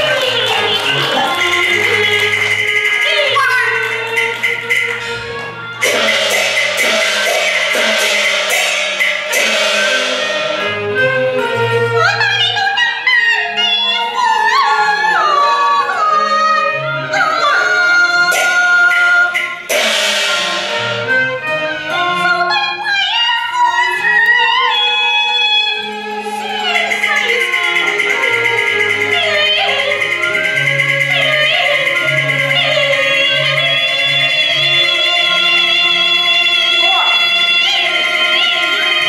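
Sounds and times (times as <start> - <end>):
instrumental ensemble: 0.0 - 39.0
loud crash: 5.8 - 11.2, 19.3 - 21.2
opera singer with pitch slides: 9.5 - 39.0.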